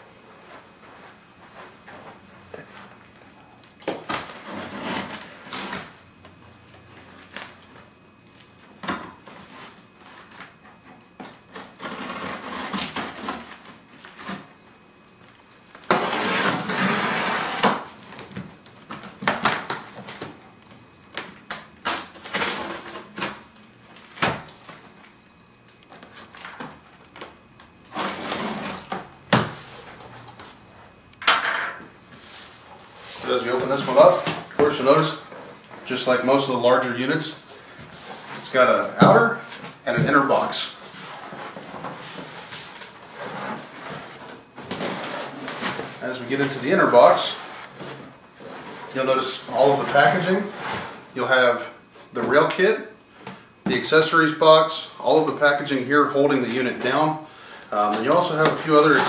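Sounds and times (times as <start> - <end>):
cardboard scraping and rustling: 4.1 - 6.0, 11.4 - 14.5, 15.9 - 18.4, 27.8 - 30.6, 37.6 - 51.1, 57.7 - 59.0
knife cutting packing tape: 11.5 - 14.5, 15.8 - 18.2, 21.8 - 23.4, 27.9 - 29.0.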